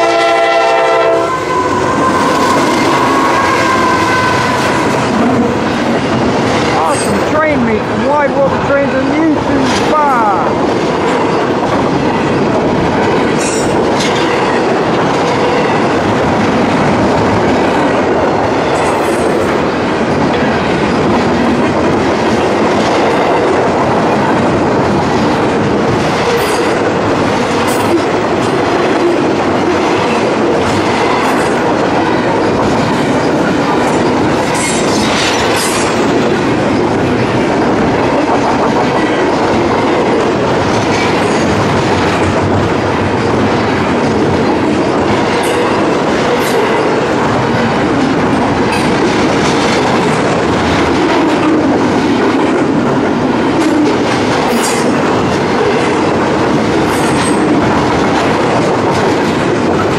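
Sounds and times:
freight train rumbling past: 0:00.0 - 0:59.9.

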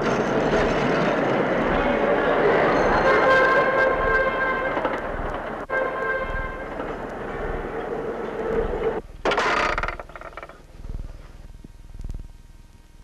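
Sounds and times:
train rumbling and rattling: 0:00.0 - 0:09.1
train horn: 0:03.0 - 0:05.0, 0:05.7 - 0:06.8.

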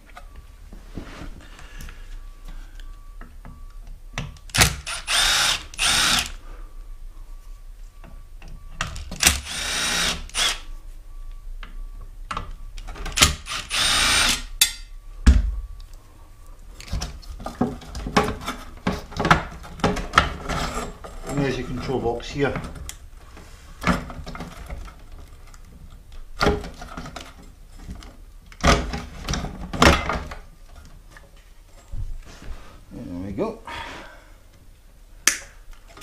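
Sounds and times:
cordless drill running: 0:04.6 - 0:06.4, 0:09.2 - 0:10.7, 0:13.2 - 0:14.5.

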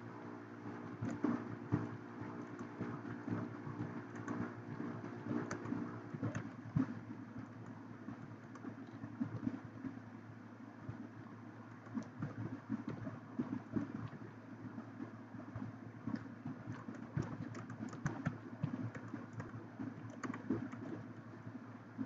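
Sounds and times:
steady low hum: 0:00.0 - 0:22.0
typing on computer keyboard: 0:02.4 - 0:06.5, 0:07.4 - 0:09.5, 0:11.8 - 0:13.1, 0:16.1 - 0:21.0.

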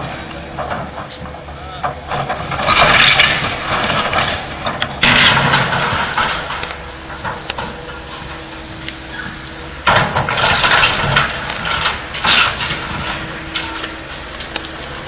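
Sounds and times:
excavator engine running: 0:00.0 - 0:15.0
building material crunching and cracking: 0:02.1 - 0:08.0.

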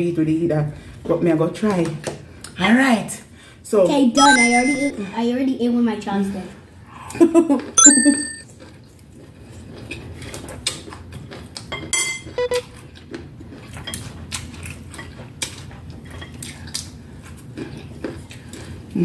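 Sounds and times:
ringing clink: 0:07.8 - 0:08.4.

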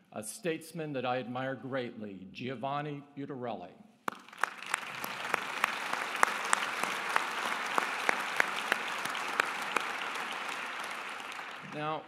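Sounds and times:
audience applause: 0:04.1 - 0:12.0
person clapping near microphone: 0:04.1 - 0:12.0.

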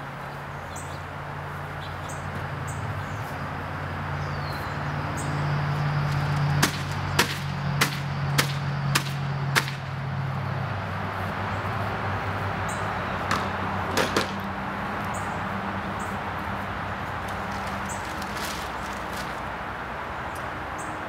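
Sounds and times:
sharp hammer strikes: 0:06.6 - 0:09.8.

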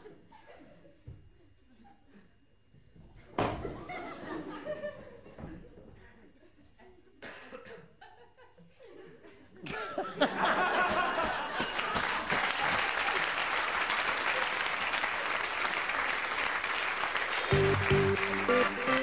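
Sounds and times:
audience applauding: 0:11.6 - 0:19.0.

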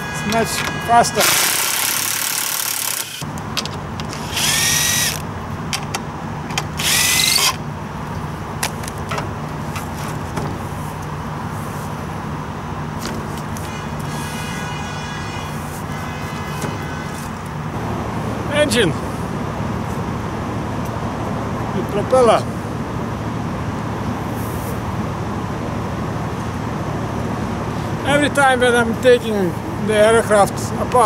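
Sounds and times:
cordless drill spinning up: 0:01.2 - 0:03.2, 0:04.1 - 0:05.2, 0:06.8 - 0:07.6.

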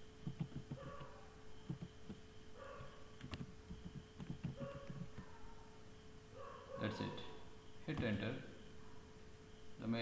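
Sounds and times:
electrical hum: 0:00.0 - 0:10.0
typing on keyboard: 0:00.2 - 0:01.1, 0:01.7 - 0:02.2, 0:03.2 - 0:05.3.

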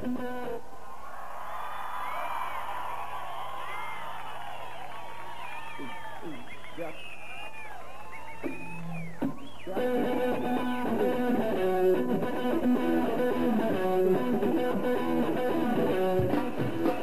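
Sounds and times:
electric guitar repeated notes: 0:00.0 - 0:00.6, 0:08.5 - 0:17.0
live band playing: 0:08.5 - 0:17.0.

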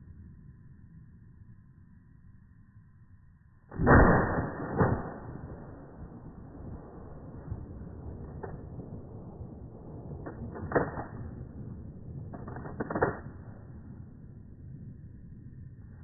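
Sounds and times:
shotgun shots: 0:03.8 - 0:06.7.

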